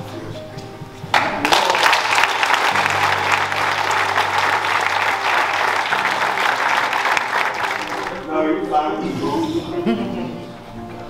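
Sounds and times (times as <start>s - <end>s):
audience applauding: 1.1s - 8.3s.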